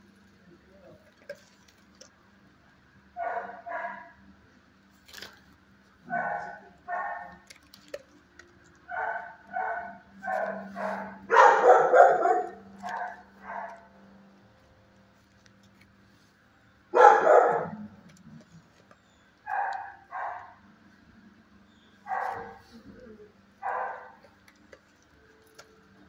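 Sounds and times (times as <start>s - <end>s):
dogs barking: 3.2s - 4.2s, 6.0s - 7.6s, 8.8s - 14.1s, 16.9s - 18.6s, 19.4s - 20.7s, 22.0s - 25.0s.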